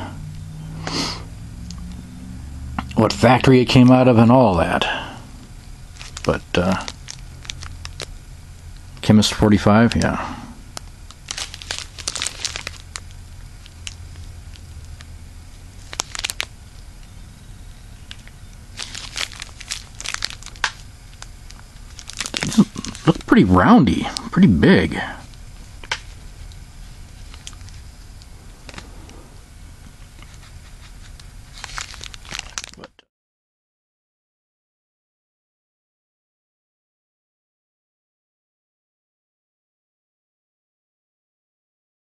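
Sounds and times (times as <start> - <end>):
low steady hum: 0.0 - 33.0
plastic wrapping crinkling: 5.9 - 8.1, 10.8 - 17.2, 18.0 - 23.4, 25.2 - 29.0, 29.9 - 32.9.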